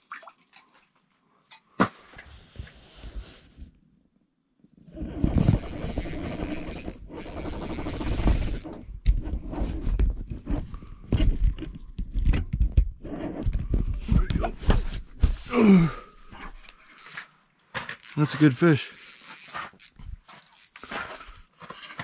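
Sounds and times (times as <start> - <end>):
fishing reel clicks and knocks: 5.2 - 8.8, 17.0 - 17.3, 18.0 - 21.4.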